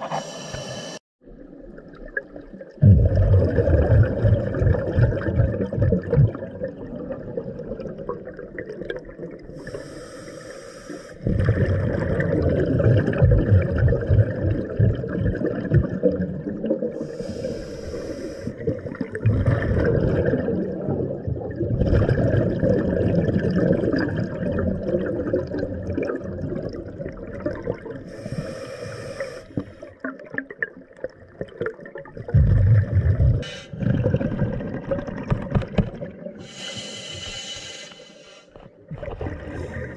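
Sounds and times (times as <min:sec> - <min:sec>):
diver breathing through regulator: 0:00.0 - 0:01.0, 0:09.6 - 0:11.3, 0:17.0 - 0:18.7, 0:28.1 - 0:29.9, 0:33.4 - 0:33.8, 0:36.4 - 0:38.6, 0:39.4 - 0:39.9
bubbling exhaled air: 0:02.8 - 0:30.7, 0:31.6 - 0:35.4, 0:36.0 - 0:39.9.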